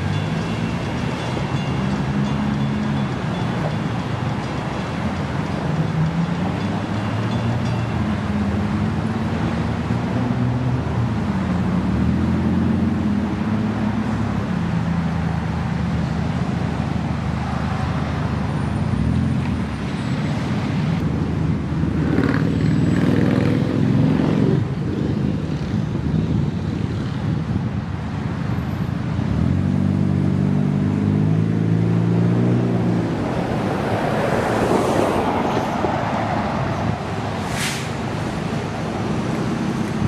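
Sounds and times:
freight train rumbling on tracks: 0:00.0 - 0:11.1, 0:32.8 - 0:40.0
cars driving past: 0:00.0 - 0:40.0.

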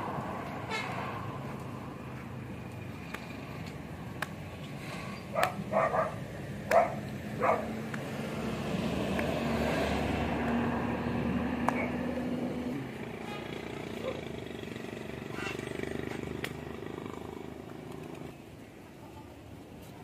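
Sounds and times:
traffic engine hum: 0:00.0 - 0:20.0
animal barks: 0:05.3 - 0:07.8, 0:11.7 - 0:12.1, 0:13.2 - 0:14.4.

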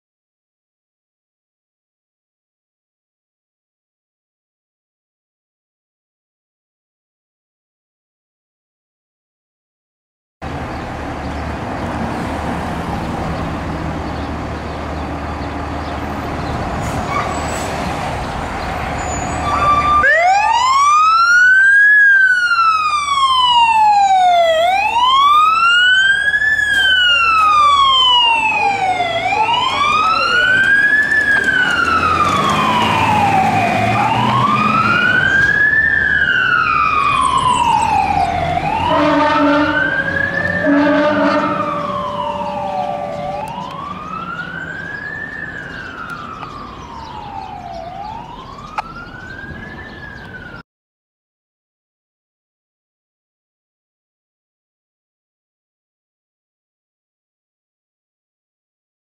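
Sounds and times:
electronic siren wailing: 0:19.3 - 0:50.6.

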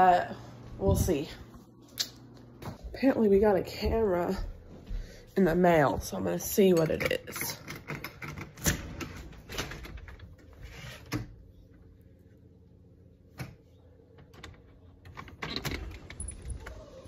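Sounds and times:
phone rustling while walking: 0:00.7 - 0:07.0
door opening rattle: 0:14.2 - 0:17.0.

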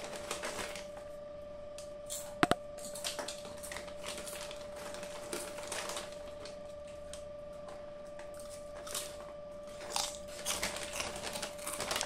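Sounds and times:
chip packet crinkling: 0:00.0 - 0:01.0, 0:02.2 - 0:07.2, 0:08.4 - 0:12.0
faint steady hum: 0:00.0 - 0:12.0.

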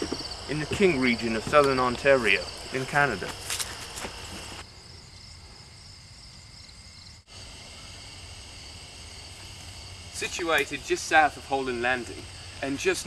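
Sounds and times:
crickets trilling: 0:00.0 - 0:13.0.

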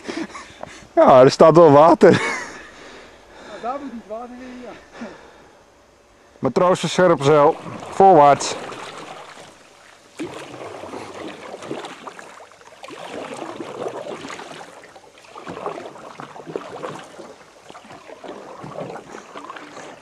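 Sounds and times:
paddle splashing in water: 0:07.2 - 0:20.0.

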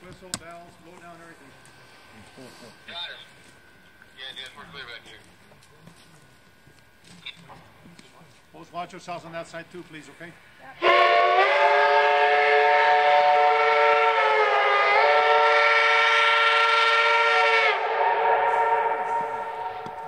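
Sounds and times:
steam locomotive whistle: 0:10.8 - 0:20.0.

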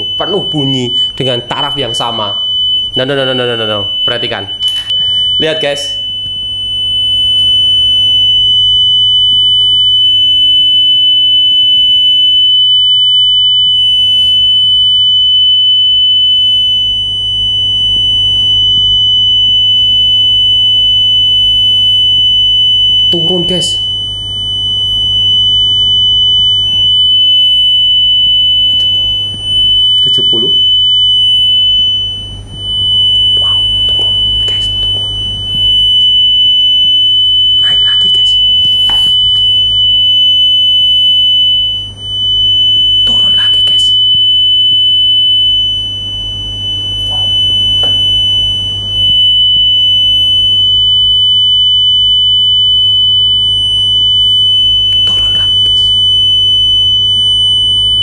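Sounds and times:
steady high pure tone: 0:00.0 - 0:58.0.

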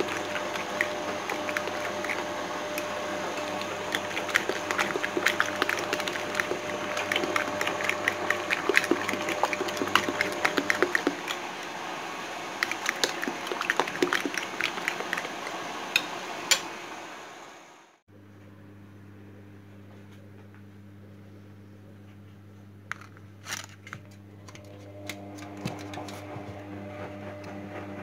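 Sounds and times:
wet sloshing of egg: 0:00.0 - 0:11.8, 0:12.5 - 0:15.8.

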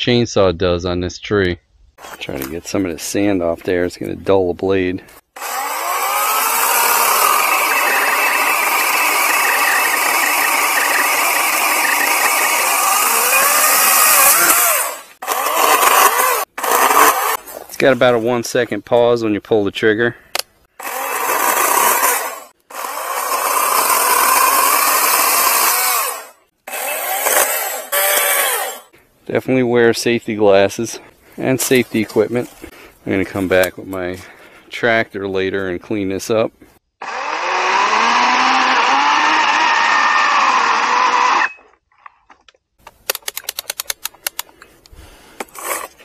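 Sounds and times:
electric chainsaw cutting wood: 0:05.4 - 0:17.4, 0:20.8 - 0:28.9, 0:37.0 - 0:41.6
rapid sharp clicks: 0:42.8 - 0:44.6.

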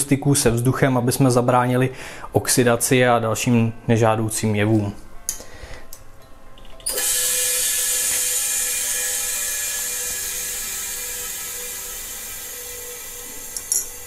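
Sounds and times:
pressurised gas hissing: 0:06.9 - 0:14.0.

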